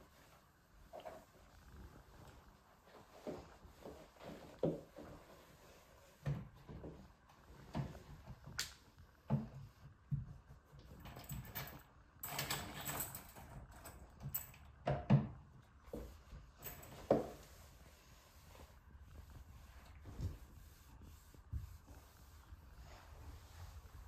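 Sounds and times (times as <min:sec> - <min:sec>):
cloth wiping wooden door: 0:00.0 - 0:08.5, 0:09.2 - 0:10.9, 0:15.3 - 0:24.0.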